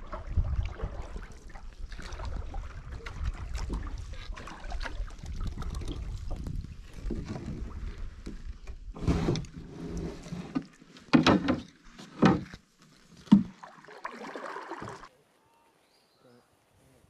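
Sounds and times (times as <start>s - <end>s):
paddle strokes: 0.0s - 15.1s
water against hull: 0.0s - 15.1s.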